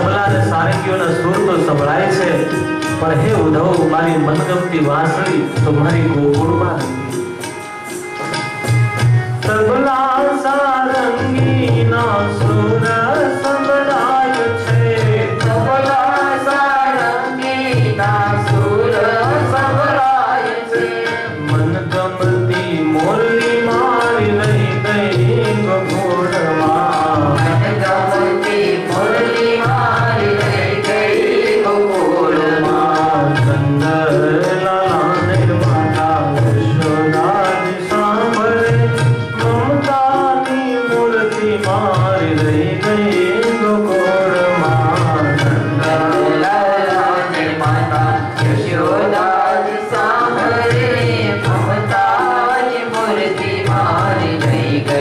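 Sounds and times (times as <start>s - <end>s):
man singing: 0.0s - 7.1s, 9.4s - 55.0s
hand drum strokes: 5.6s - 9.8s.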